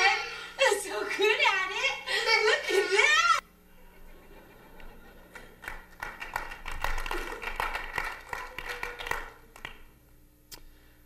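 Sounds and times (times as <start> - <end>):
light hand clapping: 5.3 - 9.9.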